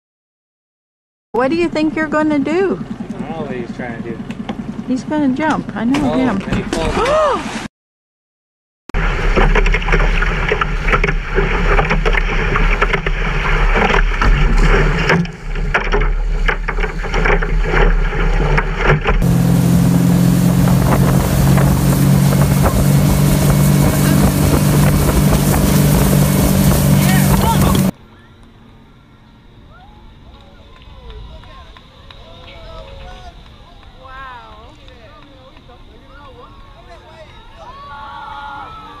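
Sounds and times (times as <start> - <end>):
motorboat engine running: 1.4 - 6.8, 9.0 - 27.9
water rushing past boat: 1.4 - 7.7, 9.0 - 28.0
water spraying from wake: 1.5 - 7.7, 9.0 - 27.9
wind buffeting microphone: 19.2 - 27.9.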